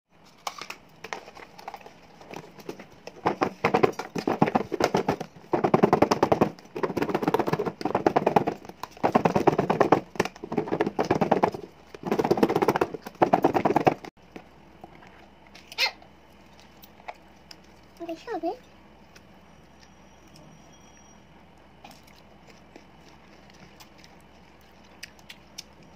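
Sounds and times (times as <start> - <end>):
food shaken in plastic box: 0.3 - 14.1.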